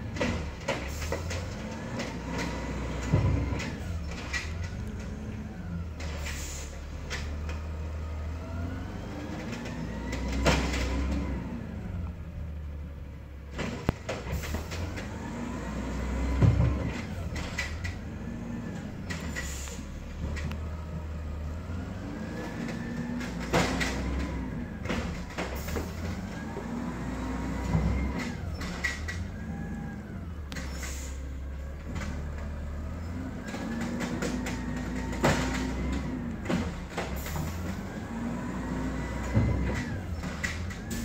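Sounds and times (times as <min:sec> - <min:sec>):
carts knocking and banging: 0:00.0 - 0:05.3, 0:09.4 - 0:11.2, 0:16.3 - 0:18.0, 0:22.4 - 0:26.8, 0:31.7 - 0:38.1
diesel engine rumble: 0:00.0 - 0:41.0.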